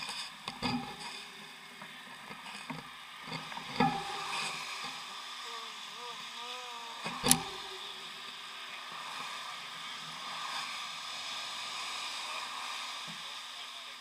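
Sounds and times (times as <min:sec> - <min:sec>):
bicycle tyres hissing on wet road: 0:00.0 - 0:14.0
faint wavering tone: 0:03.8 - 0:09.5.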